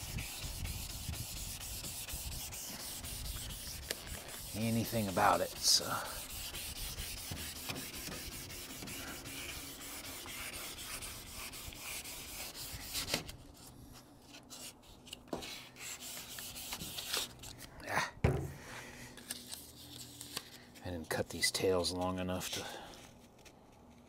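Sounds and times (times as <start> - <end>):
wet sanding scratchy strokes: 0.0 - 13.2, 15.5 - 17.3.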